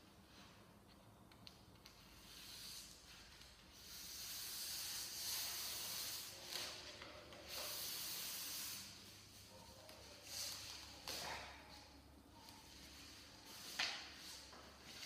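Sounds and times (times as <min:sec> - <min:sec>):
backing paper peeling hiss: 0:02.1 - 0:09.2.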